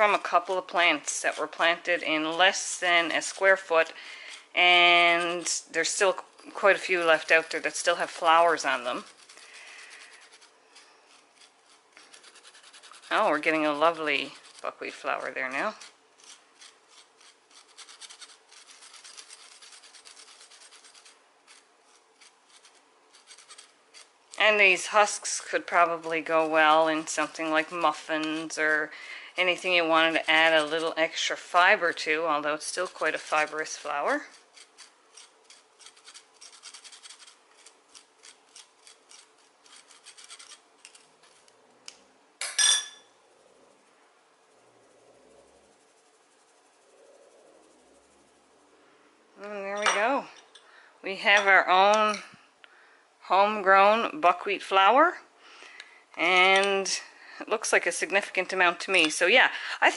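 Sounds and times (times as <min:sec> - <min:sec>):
metal spoon rasping on mesh sieve: 0:00.0 - 0:42.0
ringing metallic clink: 0:42.4 - 0:43.1.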